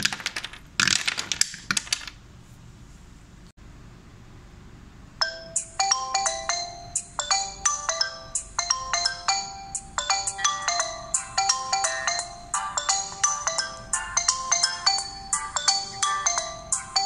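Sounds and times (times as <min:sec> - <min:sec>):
phone ringtone melody: 0:05.2 - 0:17.0.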